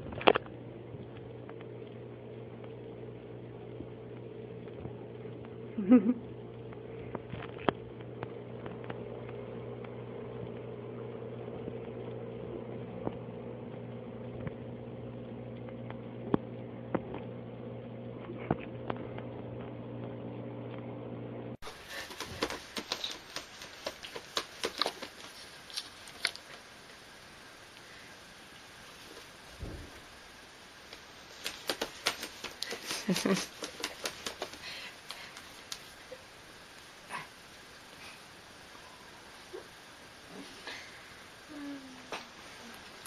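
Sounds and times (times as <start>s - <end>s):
steady low hum: 0.0s - 43.0s
cat paws tapping on carpet: 21.7s - 25.9s
cat paws clicking on notebook: 21.7s - 26.4s, 31.3s - 35.9s.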